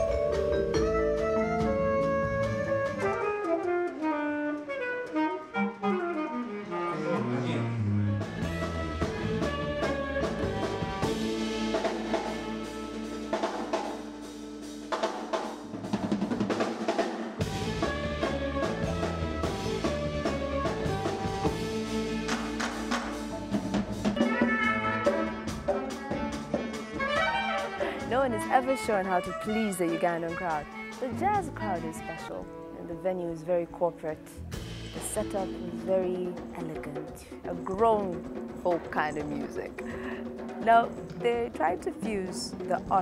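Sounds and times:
drums and cymbals: 0.0s - 5.3s, 8.2s - 32.6s, 34.4s - 43.0s
saxophones playing jazz: 0.0s - 14.8s, 17.4s - 33.4s.

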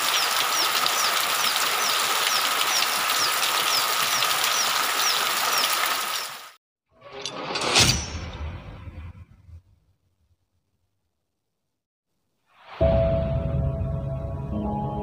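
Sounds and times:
heavy rain pouring off roof: 0.0s - 6.6s.

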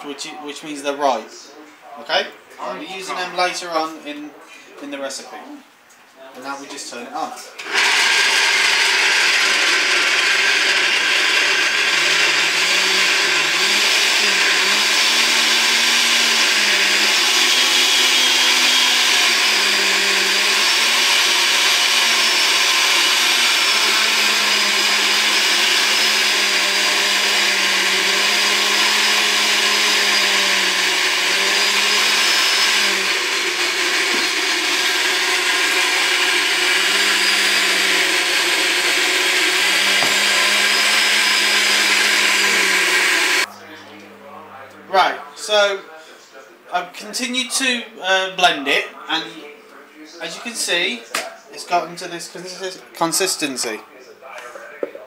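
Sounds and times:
blender motor running: 7.6s - 43.5s.

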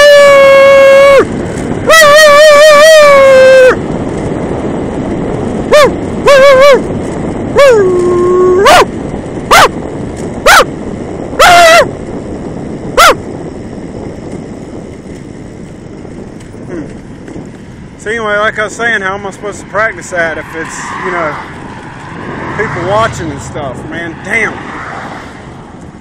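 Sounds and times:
man imitating dog barking: 1.9s - 3.8s, 5.7s - 6.8s, 7.6s - 8.9s, 9.5s - 9.8s, 10.4s - 10.7s, 11.4s - 11.9s, 13.0s - 13.2s.

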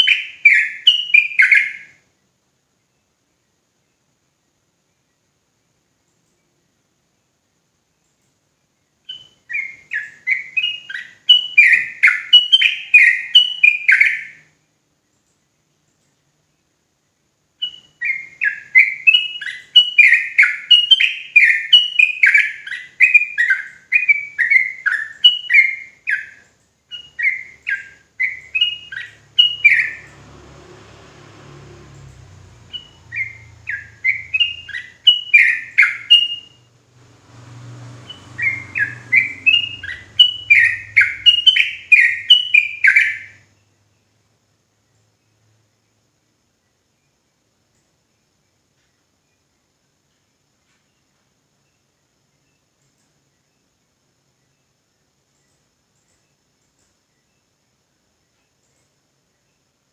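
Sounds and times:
bird chattering song: 0.0s - 2.0s, 9.0s - 14.6s, 17.6s - 30.2s, 32.2s - 43.8s.

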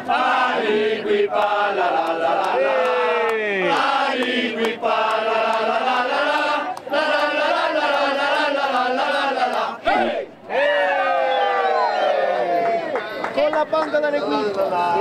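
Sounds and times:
group chanting: 0.0s - 10.6s.

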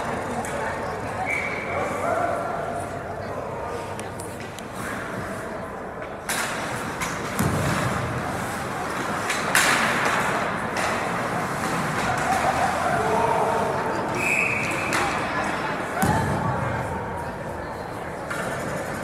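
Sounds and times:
crowd noise: 0.0s - 19.0s
ice skates skating: 3.4s - 16.0s, 16.8s - 19.0s
puck hitting boards: 9.1s - 11.1s.

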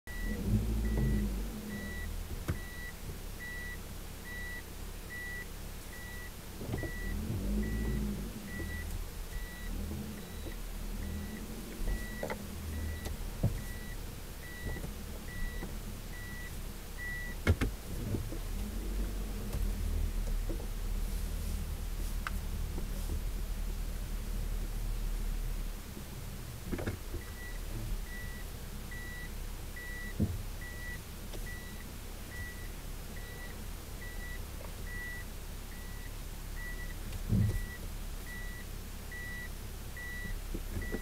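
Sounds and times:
reverse warning beeper: 0.1s - 17.4s.

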